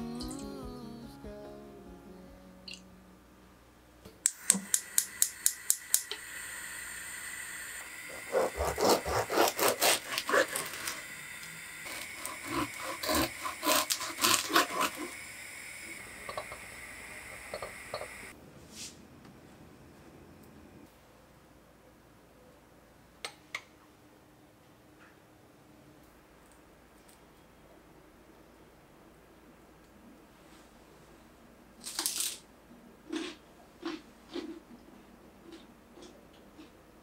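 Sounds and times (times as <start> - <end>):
knife sawing through bread: 8.1 - 11.0, 11.9 - 15.1.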